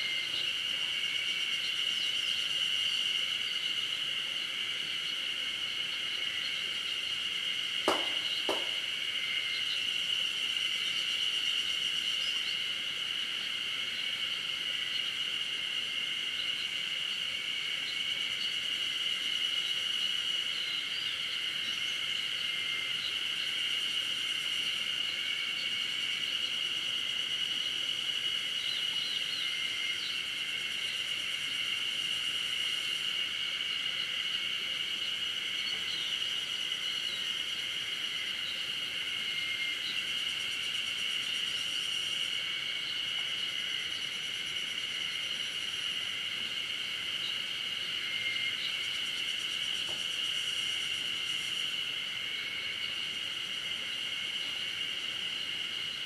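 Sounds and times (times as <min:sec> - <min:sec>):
insect chorus drone: 0:00.0 - 0:56.0.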